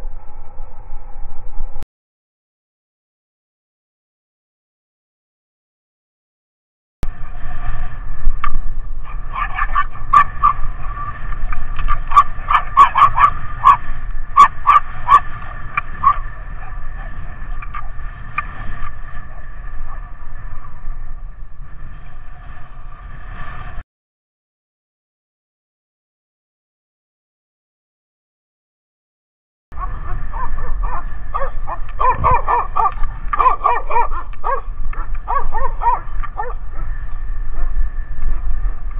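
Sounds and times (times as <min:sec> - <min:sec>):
low steady rumble: 0:00.0 - 0:01.8, 0:07.0 - 0:23.8, 0:29.7 - 0:38.9
dog barking: 0:09.1 - 0:10.7, 0:12.1 - 0:13.8, 0:14.4 - 0:15.4, 0:16.0 - 0:16.8, 0:29.8 - 0:36.9.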